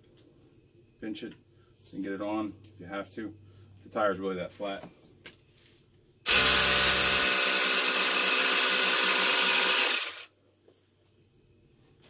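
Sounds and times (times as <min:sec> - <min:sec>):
electric air pump running: 0:06.3 - 0:10.3.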